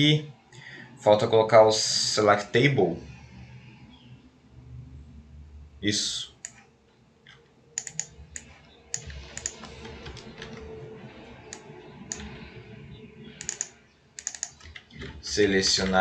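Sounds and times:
keyboard typing clicks: 7.3s - 10.7s, 11.5s - 12.4s, 13.4s - 15.2s.

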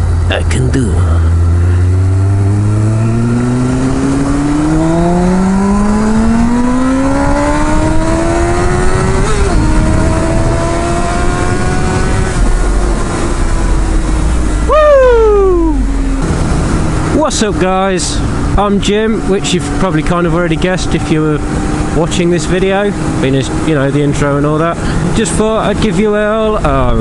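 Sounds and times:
motorcycle engine accelerating: 0.0s - 27.0s
wind rush: 1.2s - 19.2s.

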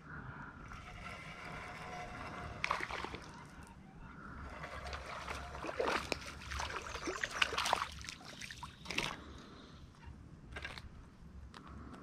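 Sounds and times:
creek water splashing: 0.7s - 3.6s, 4.4s - 9.4s.

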